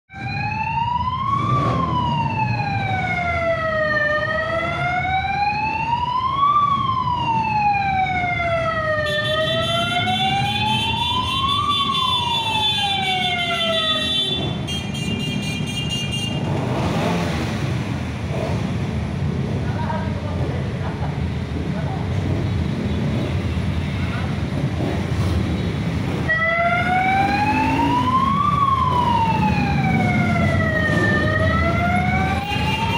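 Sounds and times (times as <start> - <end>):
siren wailing: 0.1 - 14.6, 26.2 - 32.9
motorcycle engines running: 16.3 - 32.9.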